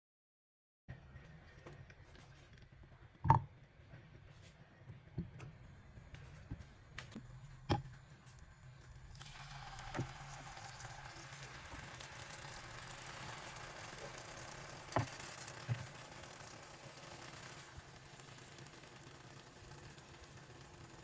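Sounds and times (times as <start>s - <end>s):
chicken sizzling in a frying pan: 7.2s - 21.0s
spatula knocking on pan: 7.7s - 7.9s.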